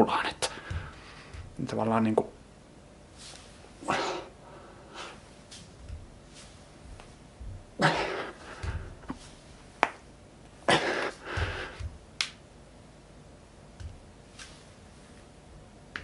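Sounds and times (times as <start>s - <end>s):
soft low thumps: 0.6s - 1.6s, 5.7s - 9.8s, 11.2s - 12.2s, 13.8s - 14.2s
man breathing out hard: 10.7s - 11.9s.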